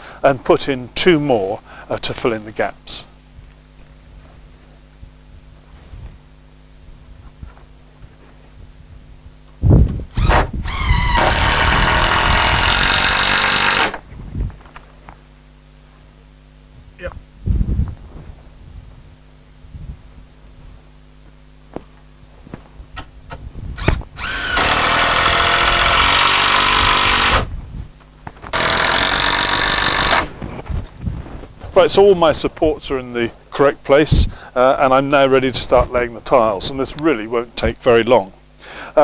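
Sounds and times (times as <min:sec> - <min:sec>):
cordless drill running: 0:10.1 - 0:14.0, 0:23.8 - 0:27.5, 0:28.5 - 0:30.3.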